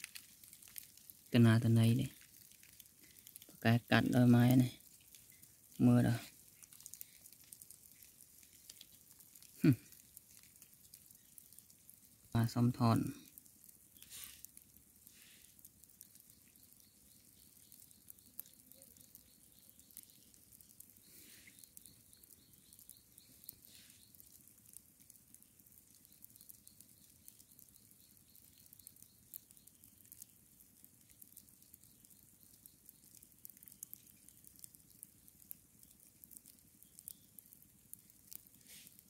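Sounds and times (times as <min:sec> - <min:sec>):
high-pitched crackling: 0:00.0 - 0:39.0
faint high chirping: 0:15.2 - 0:24.4, 0:25.4 - 0:39.0.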